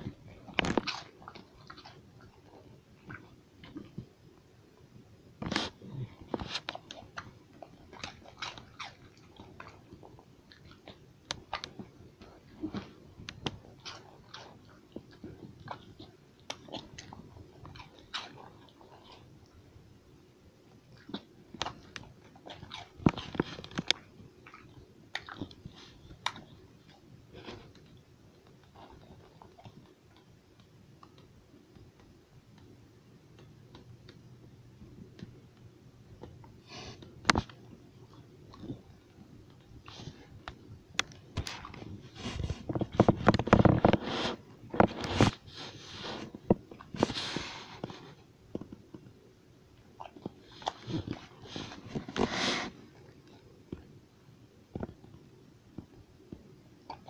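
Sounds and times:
dog crunching food: 0:00.0 - 0:04.1, 0:05.4 - 0:19.6, 0:20.7 - 0:32.6, 0:36.2 - 0:49.1, 0:49.8 - 0:53.9
phone rubbing against dog's coat: 0:42.0 - 0:46.3, 0:51.0 - 0:52.8.

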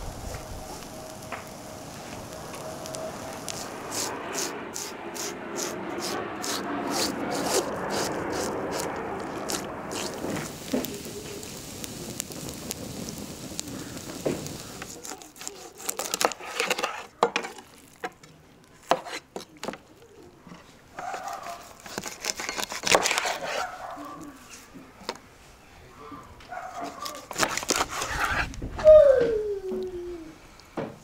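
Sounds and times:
knife scraping fish scales: 0:03.6 - 0:10.2, 0:14.8 - 0:17.9, 0:18.8 - 0:19.5, 0:21.0 - 0:23.9, 0:26.8 - 0:28.5.

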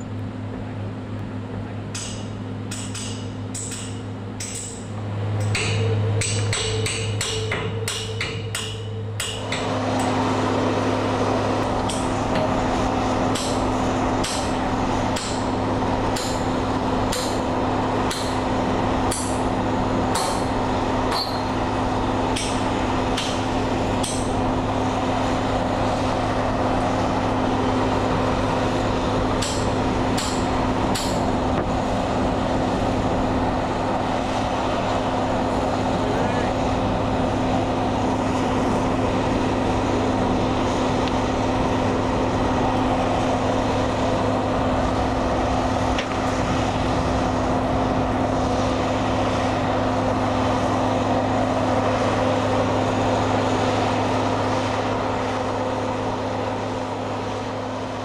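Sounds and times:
machine hum: 0:00.0 - 0:58.0
hammer striking steel: 0:01.9 - 0:09.7, 0:13.3 - 0:15.5, 0:16.1 - 0:16.5, 0:19.1 - 0:19.5, 0:20.1 - 0:20.5, 0:21.1 - 0:21.5, 0:24.0 - 0:24.4, 0:29.4 - 0:31.7.

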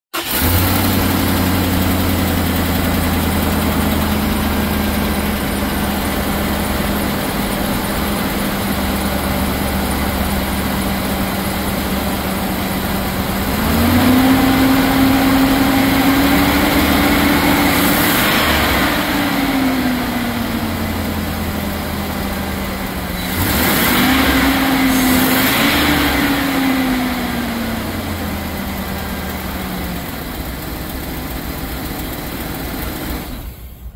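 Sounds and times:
truck engine idling and revving: 0:00.2 - 0:33.9.

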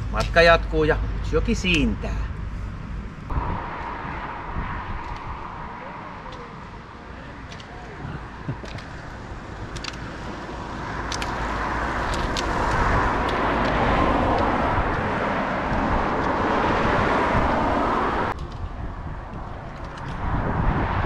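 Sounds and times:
rushing road noise: 0:00.0 - 0:21.0
sharp clicks: 0:08.6 - 0:10.1, 0:11.0 - 0:15.0.

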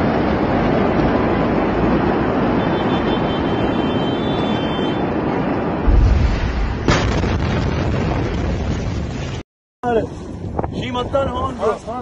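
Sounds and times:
steady rushing noise: 0:00.0 - 0:12.0
deep explosion boom: 0:05.8 - 0:09.4
sharp crack: 0:05.8 - 0:09.4.

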